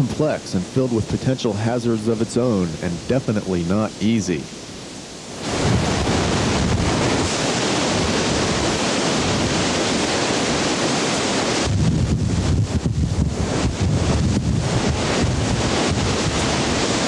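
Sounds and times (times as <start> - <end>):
whitewater rapid rushing: 5.3 - 17.0
wind buffeting microphone: 5.3 - 17.0.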